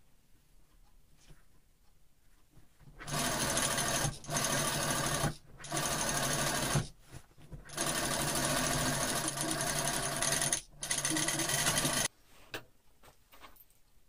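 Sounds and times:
industrial sewing machine stitching: 3.0s - 6.9s, 7.6s - 12.1s.

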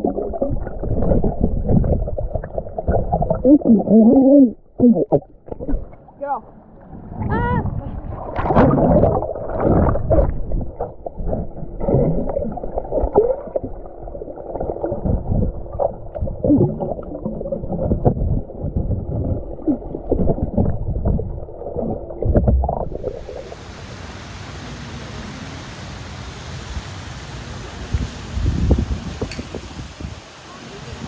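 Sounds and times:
muffled underwater bubbling: 0.0s - 23.7s
waterfalls pouring into pool: 22.9s - 31.0s.

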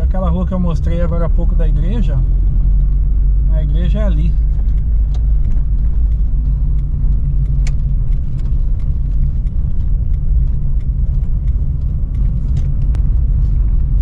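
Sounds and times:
car engine and road noise: 0.0s - 14.0s
faint ticks: 4.6s - 14.0s.

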